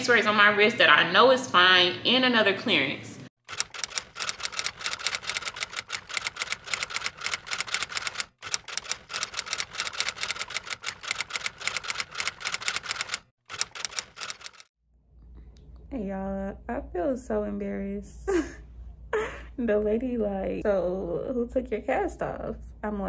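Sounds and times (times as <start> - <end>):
keyboard typing clicks: 3.5 - 14.7.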